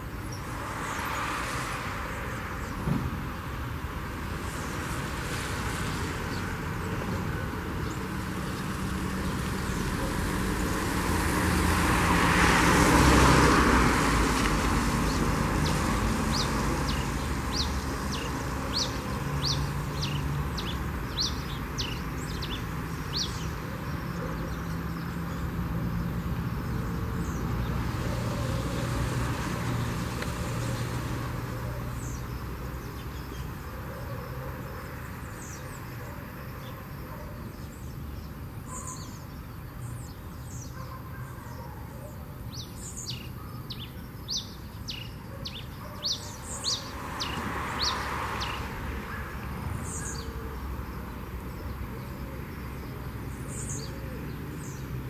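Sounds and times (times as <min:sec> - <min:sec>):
road traffic: 0:00.0 - 0:55.0
vehicle passing loudly: 0:00.3 - 0:33.7, 0:46.0 - 0:55.0.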